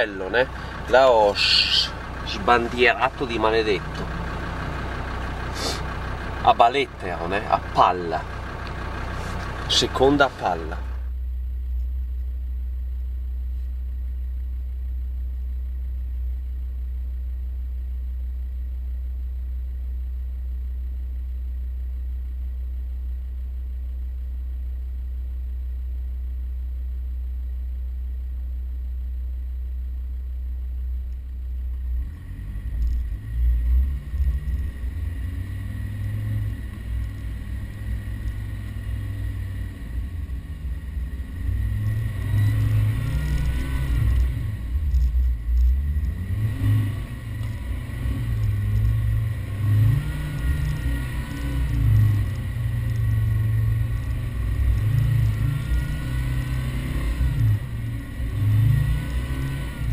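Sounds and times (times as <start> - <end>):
vehicle engine driving over sand: 0.0 - 11.1, 31.8 - 59.9
steady low rumble: 0.0 - 56.7.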